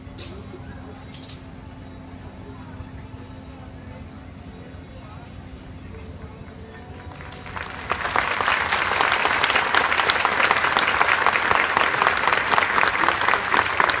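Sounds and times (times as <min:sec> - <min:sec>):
large crowd applauding: 0:06.8 - 0:14.0.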